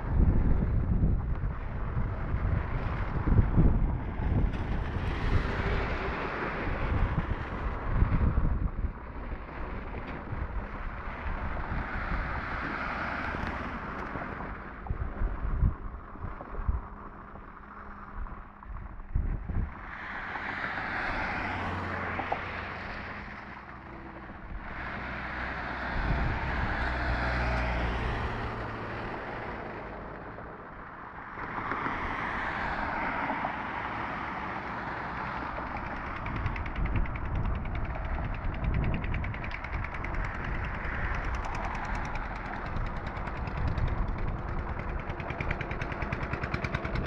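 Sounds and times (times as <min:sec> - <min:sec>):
vehicles passing: 0:00.0 - 0:47.0
wind buffeting microphone: 0:00.0 - 0:47.0.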